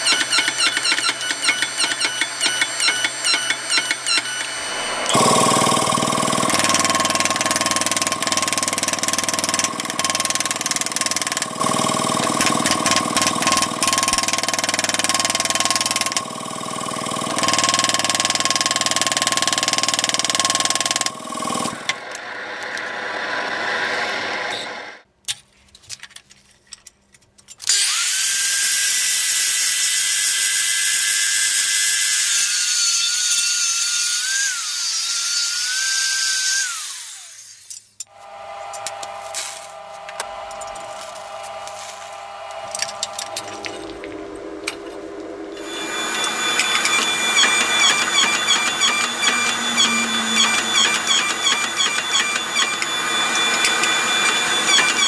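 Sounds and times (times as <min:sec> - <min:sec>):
higher-pitched power tool whine: 0:00.0 - 0:25.0, 0:27.7 - 0:55.0
power tool grinding steel: 0:45.5 - 0:55.0.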